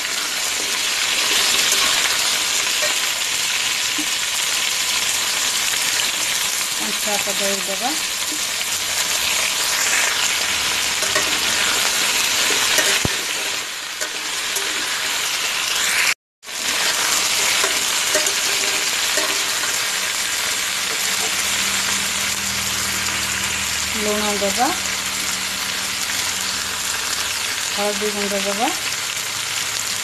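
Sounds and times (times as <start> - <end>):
metal spatula stirring in pan: 0.0 - 3.2, 8.2 - 15.4, 16.6 - 21.8
vegetables sizzling in hot oil: 0.0 - 30.0.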